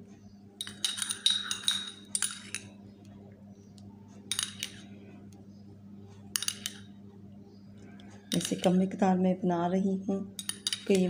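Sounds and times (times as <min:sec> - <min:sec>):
faint low hum: 0:00.0 - 0:11.0
teaspoon clinking in ceramic cup: 0:00.6 - 0:02.7, 0:06.4 - 0:06.8, 0:08.3 - 0:08.8, 0:10.4 - 0:11.0.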